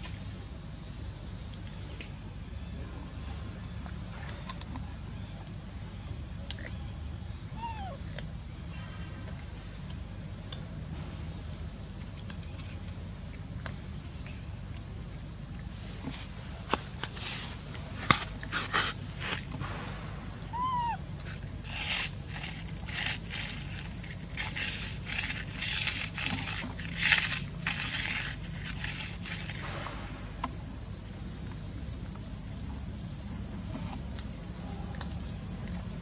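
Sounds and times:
monkey squeak: 7.6 - 8.0, 20.5 - 21.0
rustling and crunching food: 14.6 - 30.2.

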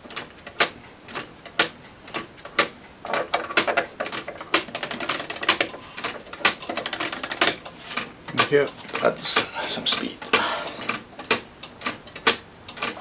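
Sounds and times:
rapid clicking of spring winding: 0.1 - 13.0
clock ticking: 3.5 - 13.0.

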